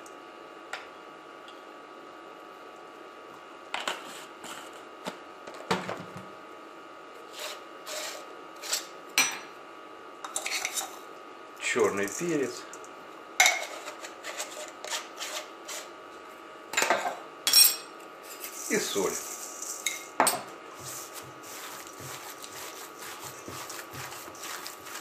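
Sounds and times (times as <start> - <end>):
hands kneading minced meat: 20.8 - 25.0.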